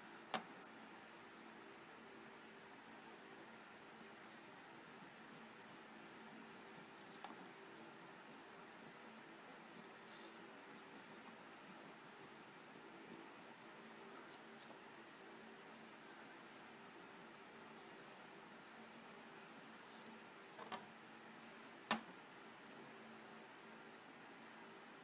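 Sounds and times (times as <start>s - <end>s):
steady faint hum: 0.0s - 25.0s
coloured pencil scratching on paper: 4.5s - 7.4s, 8.0s - 14.4s, 16.6s - 19.8s.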